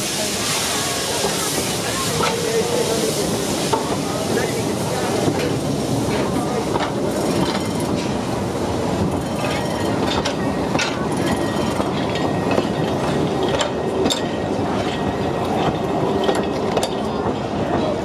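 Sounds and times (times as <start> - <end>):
train running: 0.0 - 18.0.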